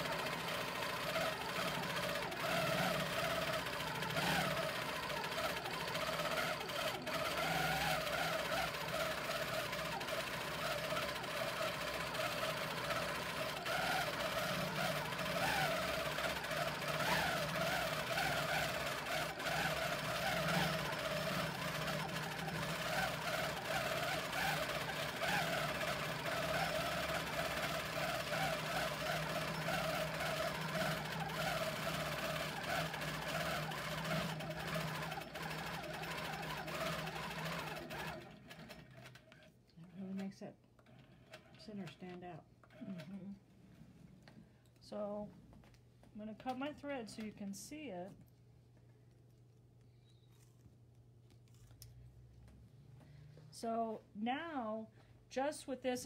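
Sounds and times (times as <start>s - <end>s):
quilting machine humming: 0.0s - 39.4s.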